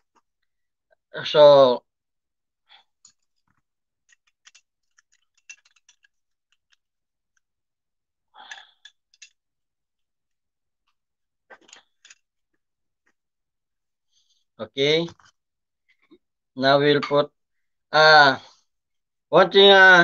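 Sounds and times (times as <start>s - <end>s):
metal parts clicking and knocking: 3.0s - 7.4s, 8.4s - 9.4s, 11.5s - 12.2s.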